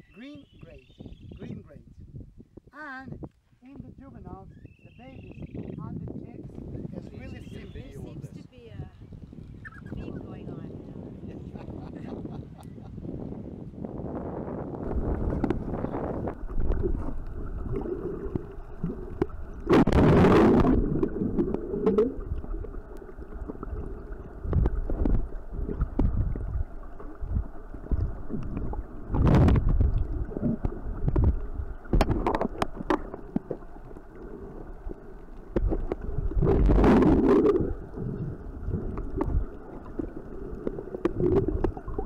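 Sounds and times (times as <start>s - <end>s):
rushes of bubbles: 14.8s - 42.0s
underwater water sloshing: 14.8s - 42.0s.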